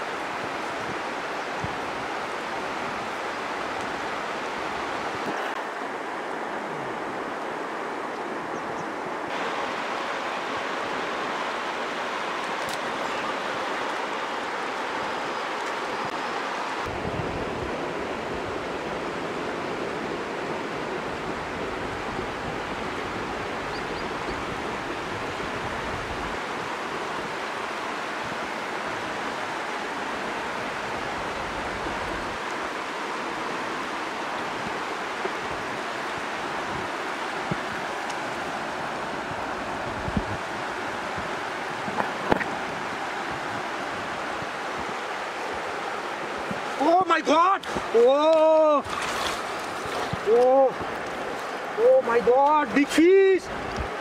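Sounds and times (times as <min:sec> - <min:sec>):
river water rushing: 0:00.0 - 0:54.0
wind rumble on microphone: 0:00.2 - 0:05.6, 0:16.8 - 0:46.8, 0:53.5 - 0:54.0.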